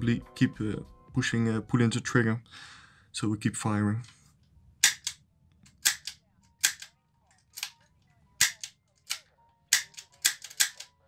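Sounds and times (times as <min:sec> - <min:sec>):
revolver trigger metallic snaps: 0:04.8 - 0:06.9.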